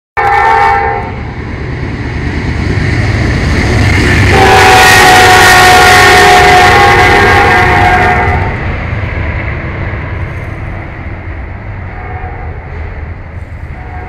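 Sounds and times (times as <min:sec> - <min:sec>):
locomotive horn chord: 0:00.2 - 0:01.2, 0:04.3 - 0:08.6
train rumbling: 0:00.2 - 0:14.0.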